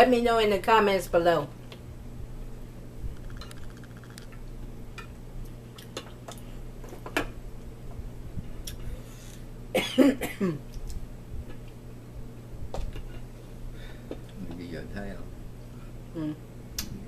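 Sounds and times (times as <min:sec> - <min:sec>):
low hum: 0:01.9 - 0:05.5
person coughing: 0:09.8 - 0:10.6.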